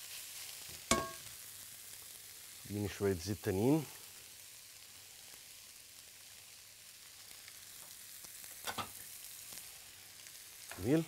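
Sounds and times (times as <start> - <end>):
vegetables sizzling in hot oil: 0.0 - 11.0.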